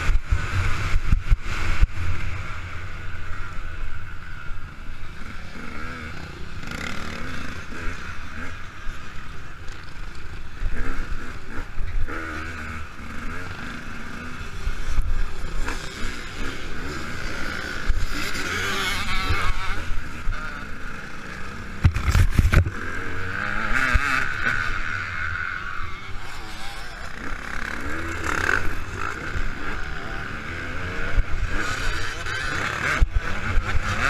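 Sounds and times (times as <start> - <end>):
dirt bike engine revving: 0.0 - 34.0.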